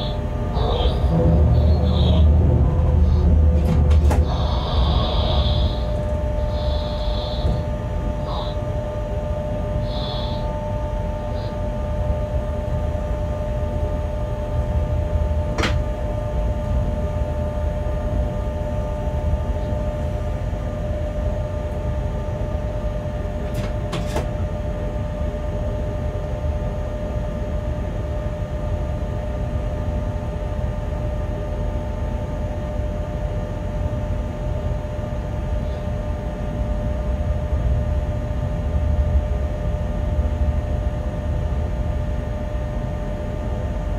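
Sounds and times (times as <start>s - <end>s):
two-tone hum: 0.0s - 28.2s
electric locomotive rumbling: 0.0s - 43.9s.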